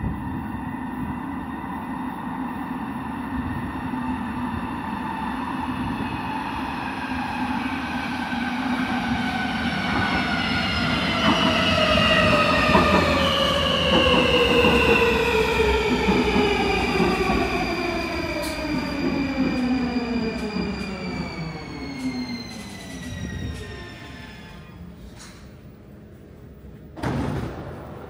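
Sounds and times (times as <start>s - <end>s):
train wheels on rails: 6.8s - 27.0s.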